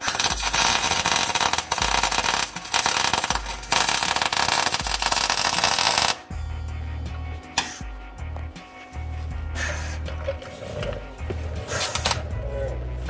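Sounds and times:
welding arc crackling: 0.0s - 6.3s.

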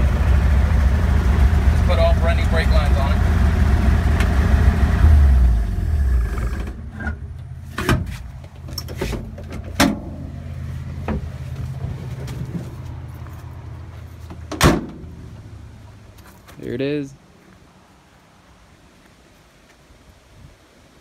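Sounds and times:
car engine idling: 0.0s - 16.2s.

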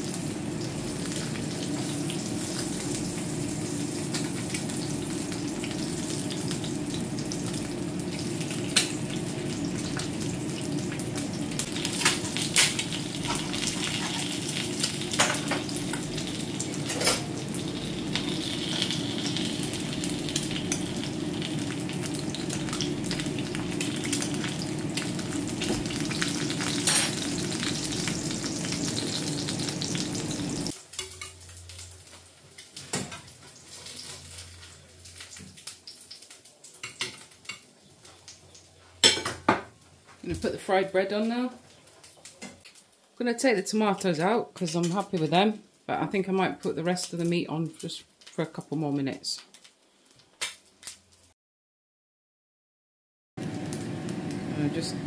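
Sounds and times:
eggs sizzling in frying pan: 0.0s - 51.4s, 53.4s - 55.0s
metal utensils clinking on pan: 26.6s - 27.3s, 30.9s - 31.5s.

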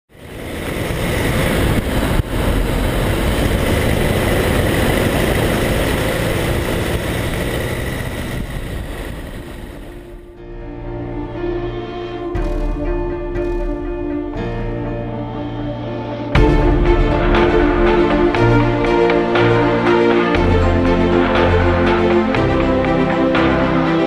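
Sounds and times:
car engine: 0.1s - 24.0s
road noise: 0.1s - 24.0s.

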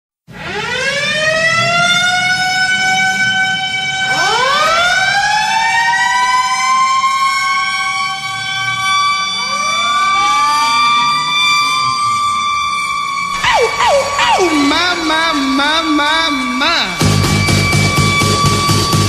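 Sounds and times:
goal horn wailing: 11.0s - 19.0s.

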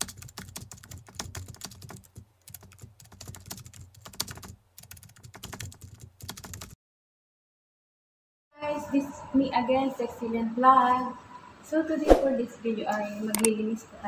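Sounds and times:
rapid keyboard typing clicks: 0.0s - 6.8s.

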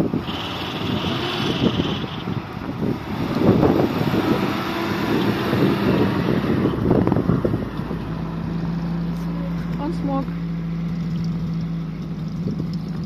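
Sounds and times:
wind buffeting microphone: 0.0s - 9.1s
vehicle engine running under load: 0.0s - 13.0s.

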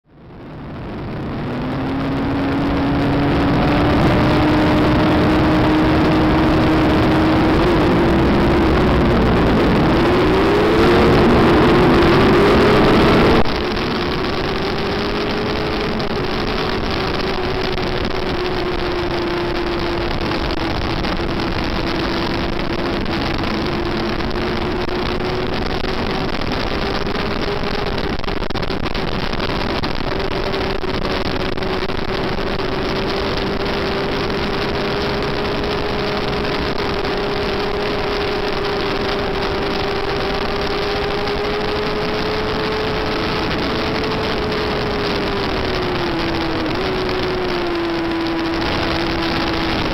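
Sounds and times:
other motorcycle engines: 0.1s - 49.9s
motorcycle engine revving: 0.2s - 49.9s
wind rushing: 0.4s - 49.9s.

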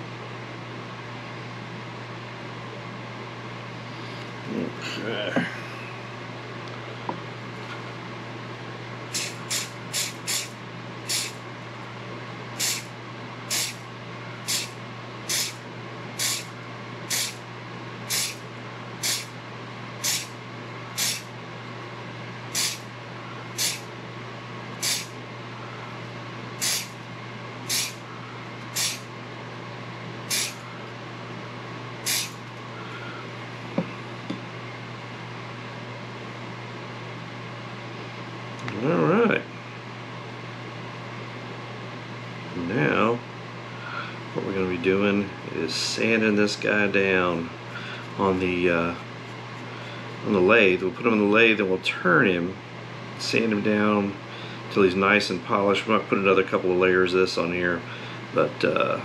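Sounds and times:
steady low hum: 0.0s - 59.0s
spray bottle spritzes: 9.1s - 10.5s, 11.1s - 11.4s, 12.6s - 12.8s, 13.5s - 13.8s, 14.5s - 14.7s, 15.3s - 15.6s, 16.2s - 16.5s, 17.1s - 17.4s, 18.1s - 18.4s, 19.0s - 19.3s, 20.0s - 20.3s, 21.0s - 21.2s, 22.6s - 22.8s, 23.6s - 23.8s, 24.8s - 25.1s, 26.6s - 26.9s, 27.7s - 28.0s, 28.8s - 29.0s, 30.3s - 30.6s, 32.1s - 32.4s.

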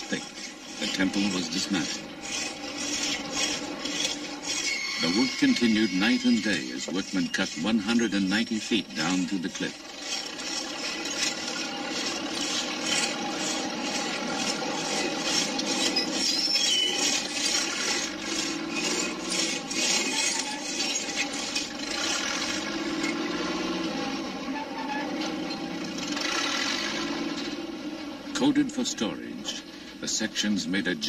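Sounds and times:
saw rasping through stone: 0.0s - 23.4s.

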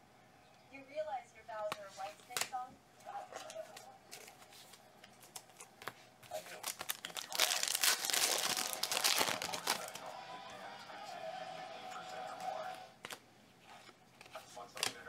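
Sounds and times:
foil wrapper tearing and crinkling: 5.2s - 10.0s.

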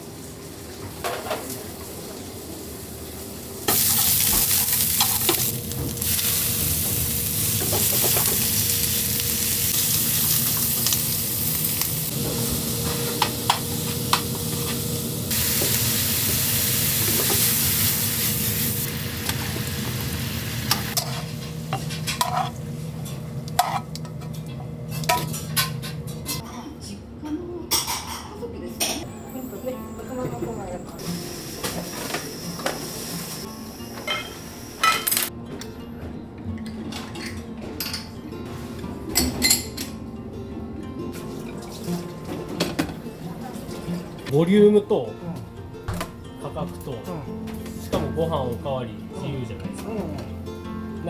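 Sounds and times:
meat and onions sizzling in pan: 1.6s - 21.3s, 31.0s - 35.3s.

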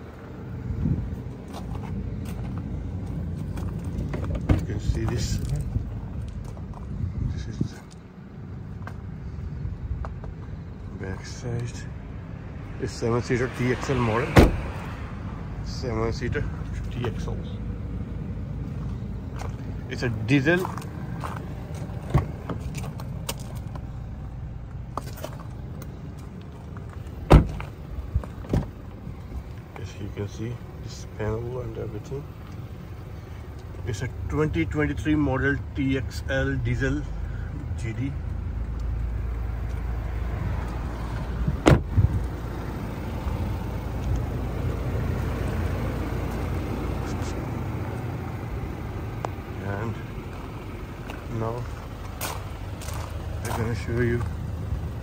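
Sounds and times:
steady low rumble: 0.0s - 55.0s
car door shutting thud: 14.3s - 14.7s, 27.3s - 27.7s, 41.6s - 42.0s.

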